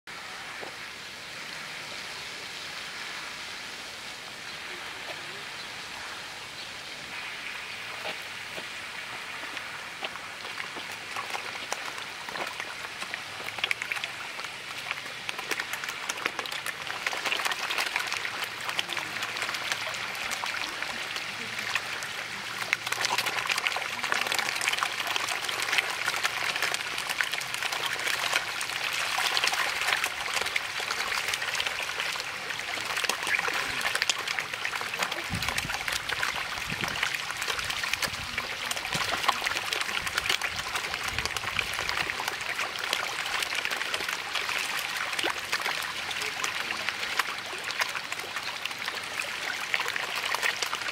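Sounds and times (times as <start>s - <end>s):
fish splashing at water surface: 7.2s - 50.9s.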